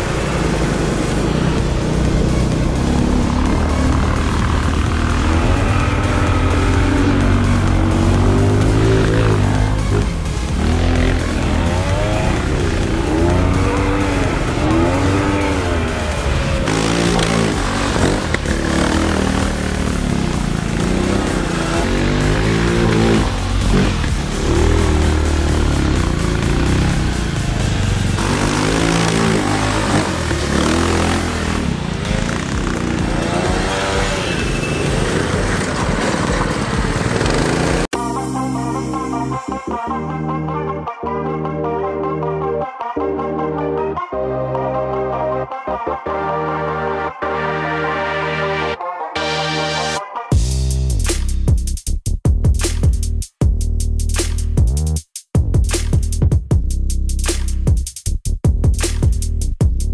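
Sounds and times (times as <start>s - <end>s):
go-kart engine revving: 0.0s - 37.9s
music playing: 0.0s - 59.9s.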